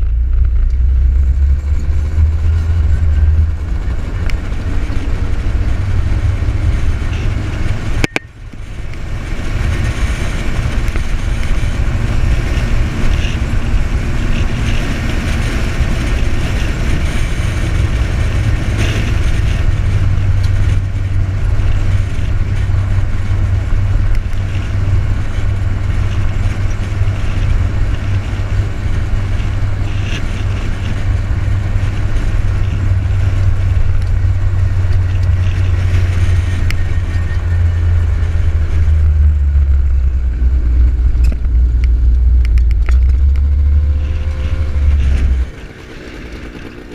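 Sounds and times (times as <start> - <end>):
atv engine rumble: 0.0 - 46.9
wind buffeting microphone: 0.0 - 46.9.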